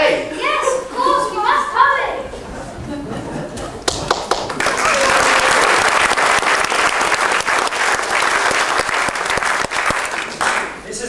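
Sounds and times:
audience applauding: 2.9s - 10.9s.

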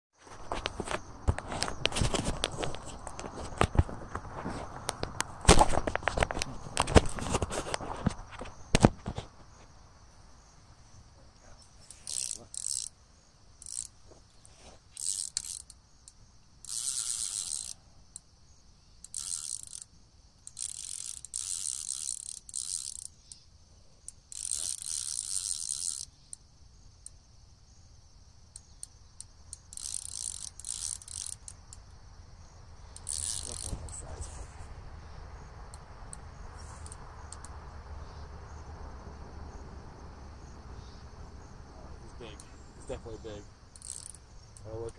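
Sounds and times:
fishing reel drag clicking: 11.8s - 13.0s, 13.6s - 14.0s, 15.0s - 17.8s, 19.0s - 23.4s, 24.1s - 26.4s, 29.5s - 31.7s, 32.9s - 34.3s, 35.7s - 37.5s, 43.7s - 44.9s.

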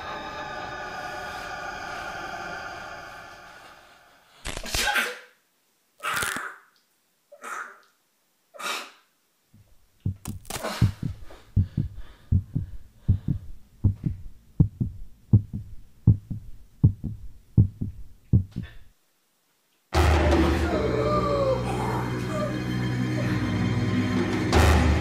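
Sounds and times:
heartbeat sound effect: 10.0s - 18.9s
man screaming and gasping: 20.0s - 22.6s.

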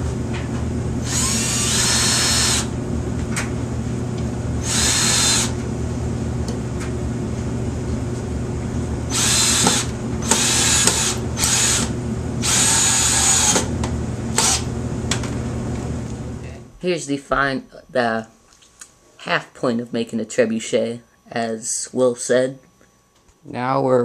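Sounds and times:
steady low hum: 0.0s - 24.0s
cordless drill driving screws: 1.0s - 2.7s, 4.6s - 5.6s, 9.1s - 13.7s, 14.4s - 14.6s.

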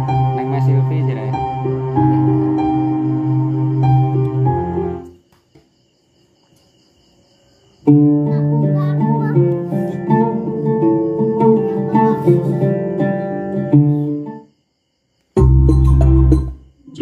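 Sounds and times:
guitar music from small speaker: 7.9s - 14.2s
music with heavy bass: 15.4s - 16.6s.

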